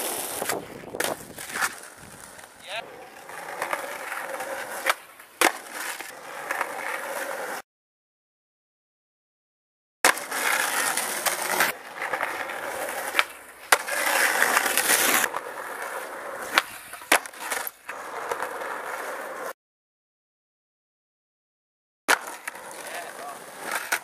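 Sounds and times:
skateboard clacks: 0.0 - 7.6, 10.0 - 19.4, 22.1 - 24.0
skateboard wheels rolling on asphalt: 0.0 - 7.6, 10.0 - 19.6, 22.1 - 24.0.

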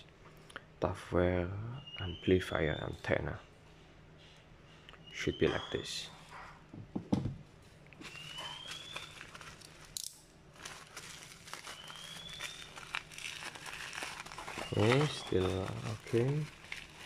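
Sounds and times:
knocks on wooden desk: 6.7 - 7.4
bubble-wrap mailer crinkling: 8.0 - 17.0.

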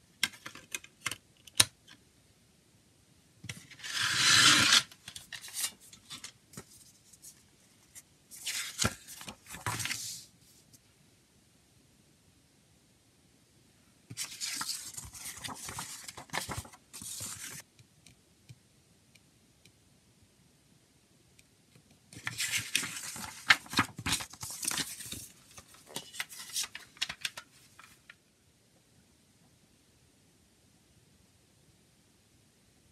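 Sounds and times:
paper booklet pages rustling: 3.5 - 10.7, 14.1 - 17.6, 22.2 - 28.2.

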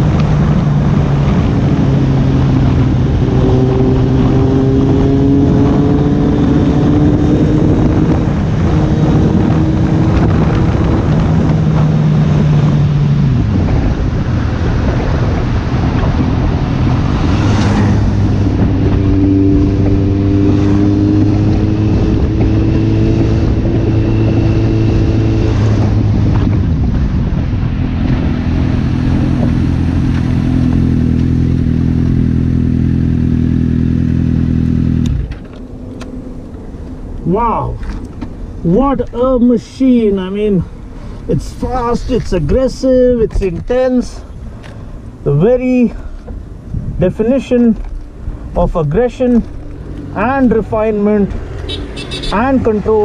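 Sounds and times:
motorcycle engine running hard: 0.0 - 35.5.

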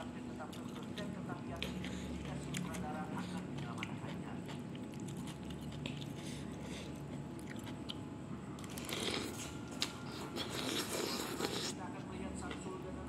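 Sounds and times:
chewing and biting noodles: 0.5 - 8.0, 8.6 - 11.8.

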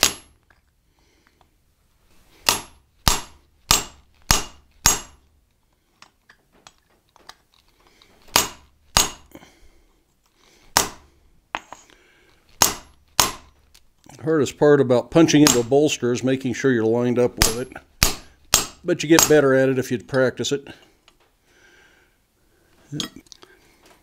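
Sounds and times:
hammer striking punch on anvil: 0.0 - 0.4, 2.4 - 5.2, 8.3 - 9.3, 10.7 - 11.0, 12.6 - 13.5, 17.4 - 19.4.

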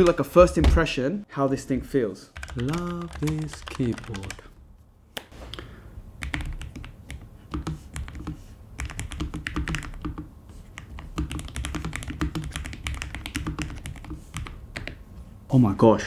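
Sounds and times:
mechanical keyboard typing: 2.4 - 4.5, 6.2 - 15.0.

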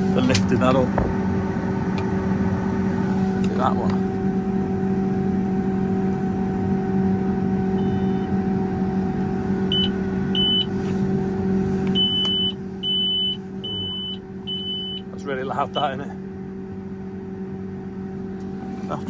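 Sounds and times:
electronic warning beeps: 7.8 - 8.3, 9.7 - 10.7, 11.9 - 15.1, 15.7 - 16.0.

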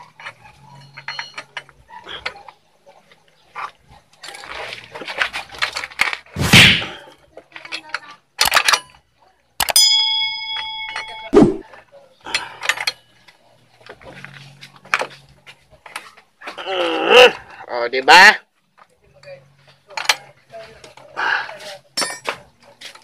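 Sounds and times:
metal tools clattering: 0.0 - 6.2, 7.5 - 9.1, 9.8 - 11.3, 19.1 - 23.0
bell chime sound effect: 9.8 - 11.4.

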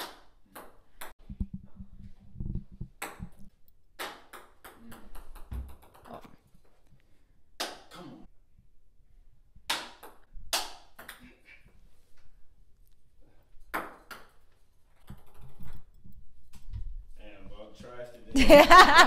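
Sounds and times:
ping-pong balls bouncing on table: 0.0 - 1.6, 2.7 - 6.2.

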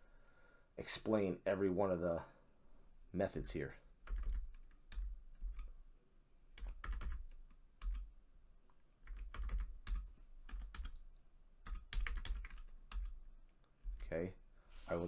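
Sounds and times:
typing on computer keyboard: 4.0 - 5.8, 6.6 - 8.1, 9.0 - 13.2.

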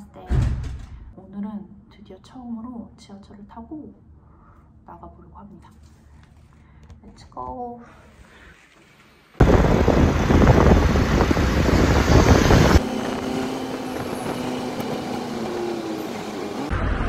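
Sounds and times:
auto-rickshaw engine running: 9.4 - 16.7
rushing road and wind noise: 9.4 - 17.0.

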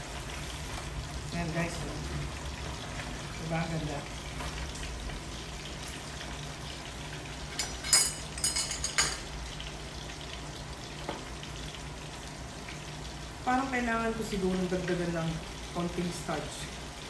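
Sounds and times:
oil sizzling in deep fryer: 0.0 - 17.0
metal tongs clinking on pot: 7.5 - 9.3.

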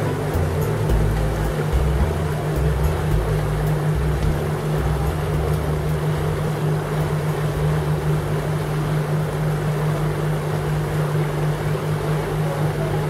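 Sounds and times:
boat engine humming: 0.0 - 13.0
wake rushing along hull: 0.0 - 13.0.

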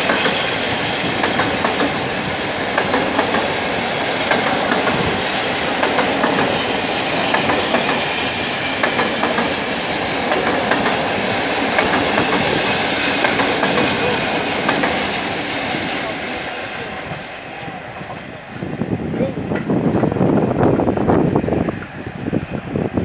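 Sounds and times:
train wheels rumbling on rail: 0.0 - 23.0.

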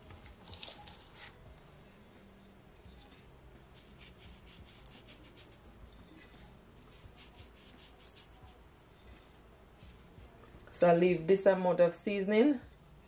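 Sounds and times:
seasoning sprinkled on fish: 3.7 - 5.8, 6.9 - 8.6.

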